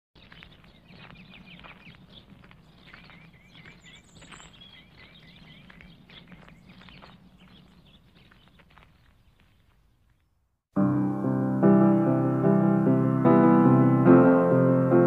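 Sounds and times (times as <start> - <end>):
birds chirping: 0.2 - 10.4.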